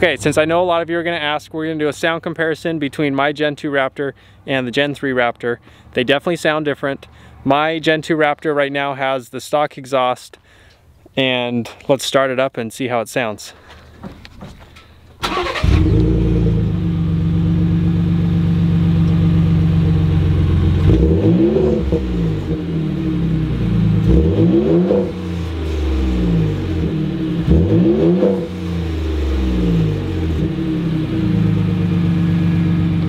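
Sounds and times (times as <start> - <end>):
truck engine starting and revving: 15.2 - 33.0.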